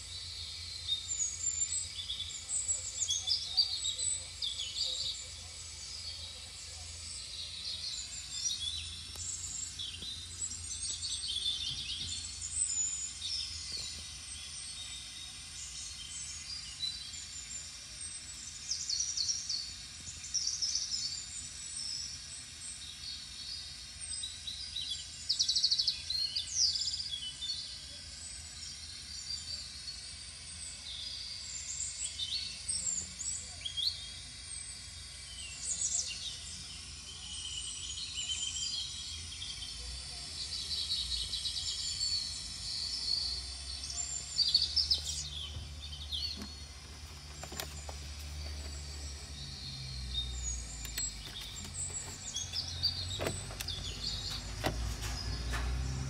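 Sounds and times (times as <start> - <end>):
small birds chirping: 0.0 - 56.0
steady low hum: 33.2 - 56.0.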